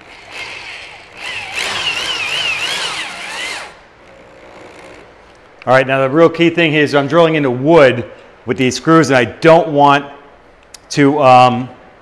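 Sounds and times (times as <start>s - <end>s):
power drill driving screw into wood: 0.0s - 3.8s.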